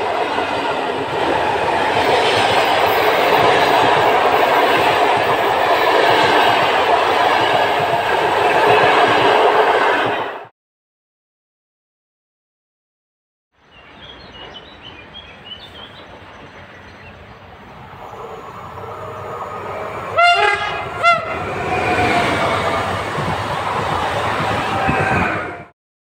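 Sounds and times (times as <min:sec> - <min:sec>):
train rumbling on rails: 0:00.0 - 0:10.5, 0:13.7 - 0:25.7
train horn blasts: 0:18.1 - 0:21.6.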